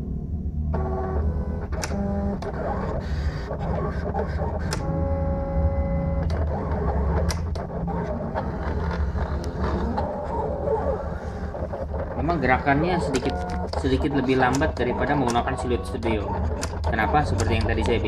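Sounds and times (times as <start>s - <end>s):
sharp clicks: 6.2s - 7.7s, 13.0s - 18.0s.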